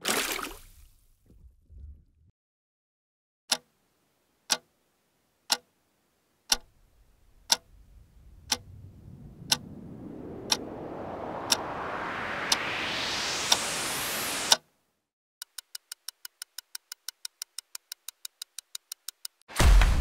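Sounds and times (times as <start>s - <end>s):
clock ticking: 4.5s - 4.7s, 5.5s - 5.7s, 6.5s - 6.7s, 7.4s - 7.7s, 8.5s - 8.7s, 9.5s - 9.7s, 15.4s - 19.4s
low rumble: 6.7s - 14.5s
rising noise swell: 7.1s - 14.6s.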